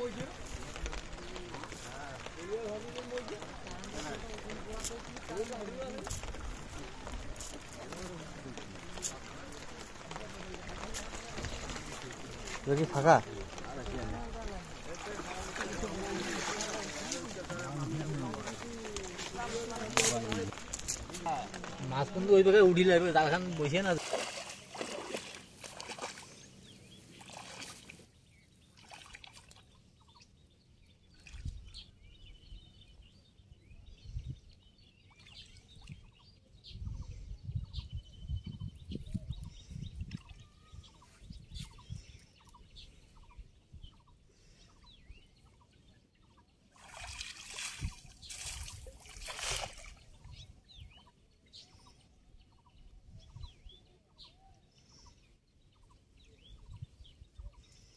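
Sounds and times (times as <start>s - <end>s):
shallow water splashing: 0.0s - 29.8s, 46.7s - 50.4s
legs thudding in water: 23.9s - 26.4s, 46.8s - 50.0s
net landing on water: 24.0s - 26.3s, 46.8s - 50.0s.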